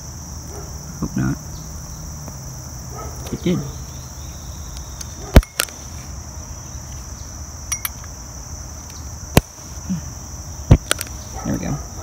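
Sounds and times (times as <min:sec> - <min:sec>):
crickets chirping: 0:00.0 - 0:12.0
sharp clicks: 0:04.7 - 0:05.8, 0:10.7 - 0:11.2.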